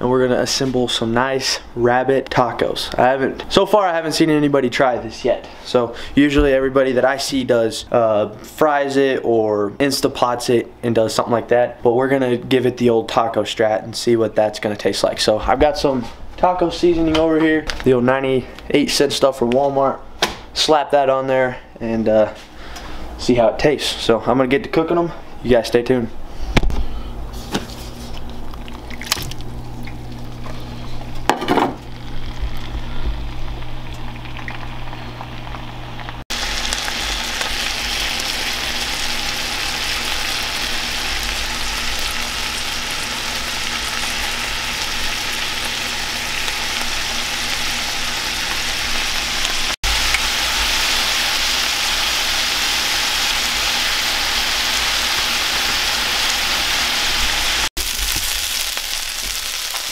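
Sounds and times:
meat sizzling in a pan: 31.8s - 59.9s.

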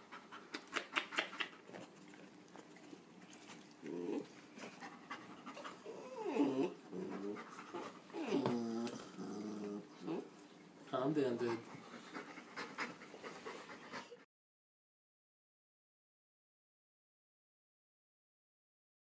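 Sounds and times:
puppy panting: 0.0s - 10.3s, 11.1s - 14.3s
puppy whining yowls: 5.8s - 6.8s, 8.1s - 9.0s.

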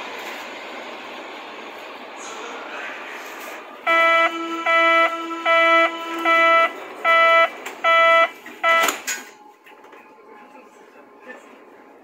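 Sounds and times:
electronic door warning beeps: 3.9s - 9.2s.

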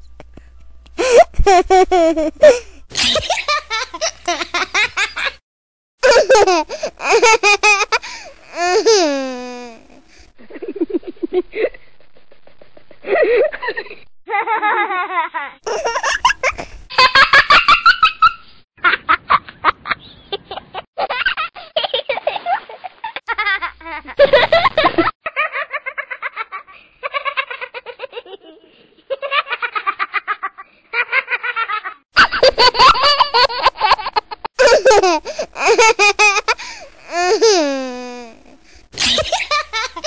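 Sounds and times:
babies laughing: 1.0s - 5.2s.

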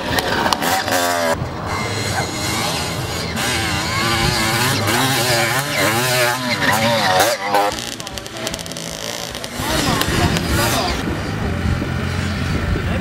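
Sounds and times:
motorcycle engines revving: 0.0s - 13.0s.

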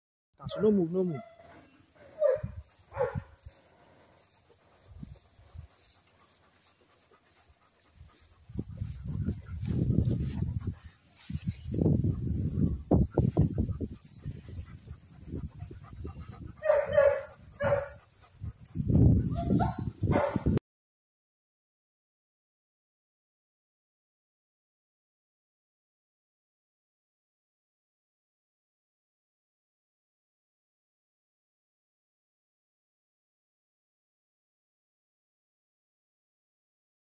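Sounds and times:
high insect trilling: 0.4s - 20.1s.

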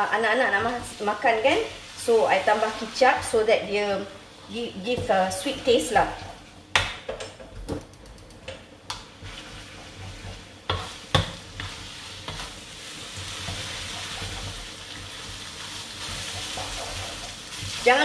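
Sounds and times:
noodles sizzling in wok: 0.0s - 6.8s, 9.0s - 18.0s
spatula stirring in metal wok: 9.1s - 18.0s.

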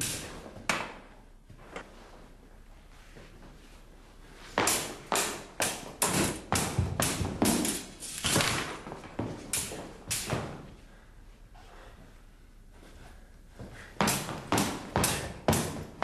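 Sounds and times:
swords clashing: 4.6s - 8.7s, 9.5s - 10.5s, 14.0s - 15.9s.

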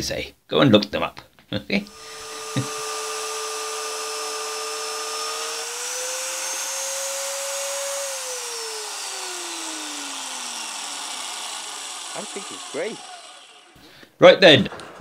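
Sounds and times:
magnetic drill motor drilling steel: 1.9s - 13.8s.

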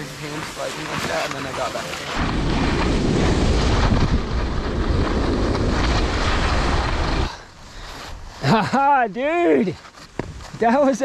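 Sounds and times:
wind buffeting microphone: 0.0s - 8.4s
skis running over snow: 0.0s - 8.7s.

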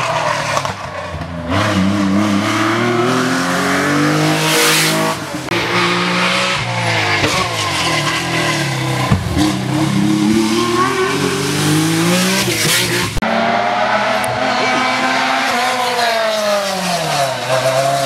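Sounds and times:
rally car engines revving: 0.0s - 18.0s.

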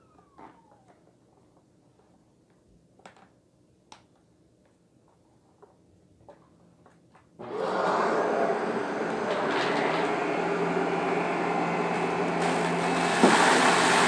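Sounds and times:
vacuum cleaner motor whirring: 7.4s - 14.0s.

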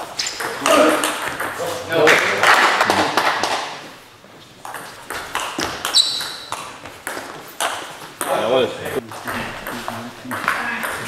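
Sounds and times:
short high squeak: 5.9s - 6.5s.

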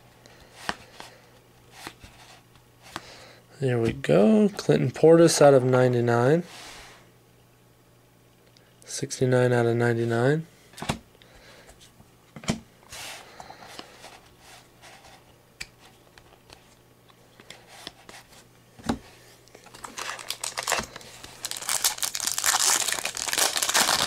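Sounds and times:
foil wrapper crinkling: 19.6s - 24.0s.

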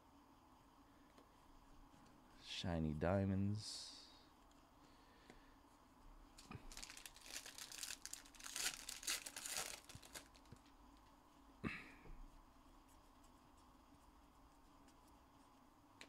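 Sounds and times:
wrapper tearing and crinkling: 6.4s - 10.7s.

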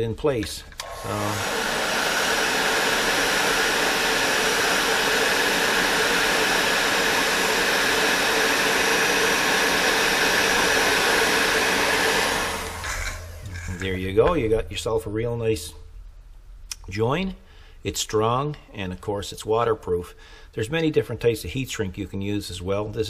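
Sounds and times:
heat gun blowing hot air: 0.8s - 13.9s.

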